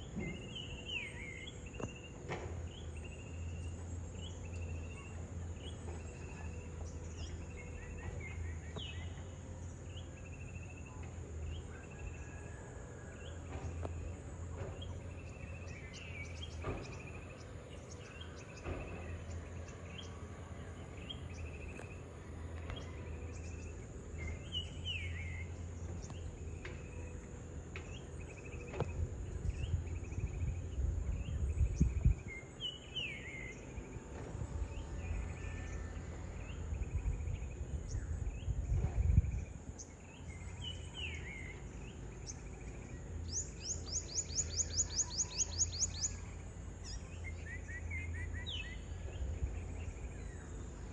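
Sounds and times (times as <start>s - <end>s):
distant excavator engine droning: 0.0s - 50.9s
bird chirps: 40.1s - 50.4s.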